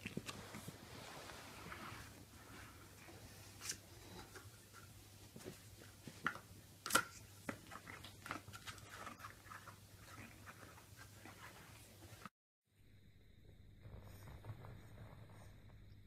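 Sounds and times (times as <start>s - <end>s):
puppy chewing cardboard tube: 7.5s - 11.8s.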